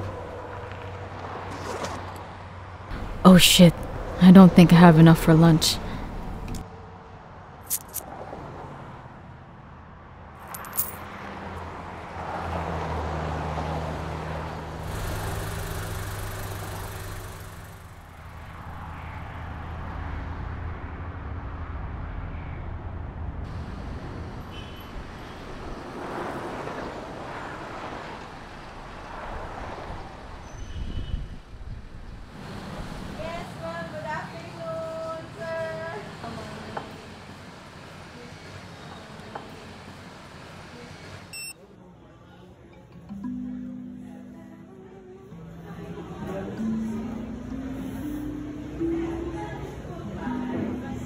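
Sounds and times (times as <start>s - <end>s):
vehicle engine hum from cabin: 0.0s - 4.3s, 5.0s - 30.8s
traffic noise: 0.0s - 51.0s.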